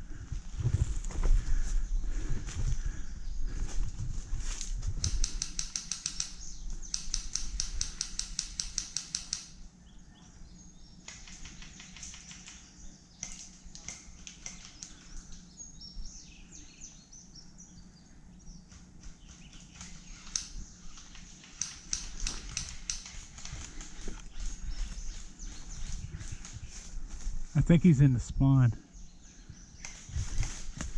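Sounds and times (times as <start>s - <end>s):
fast even clicks: 5.0s - 9.5s.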